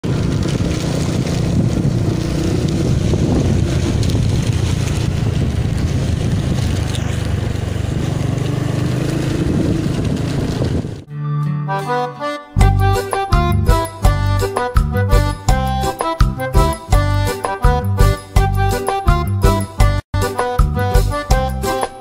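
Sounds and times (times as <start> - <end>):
motorcycle engine running: 0.0 - 11.1
wind rushing over microphone: 0.0 - 11.1.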